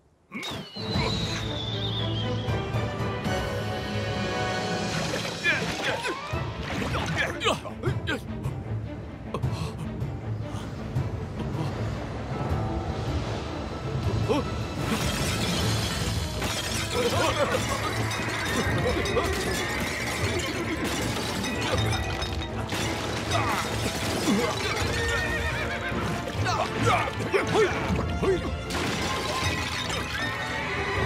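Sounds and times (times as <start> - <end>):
film score music: 0.0 - 31.0
clay jars shattering: 14.9 - 25.3, 28.7 - 30.3.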